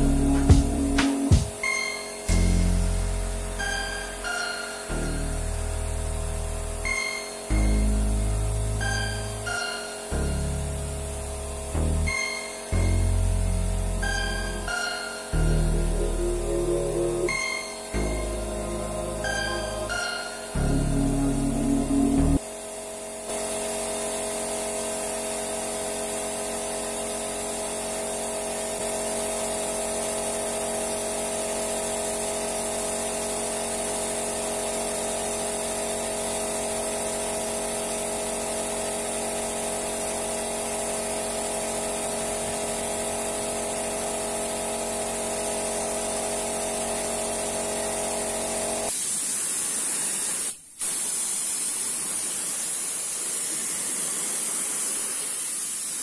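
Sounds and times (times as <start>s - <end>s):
air compressor running: 0.0s - 56.0s
spray gun hissing: 28.7s - 56.0s.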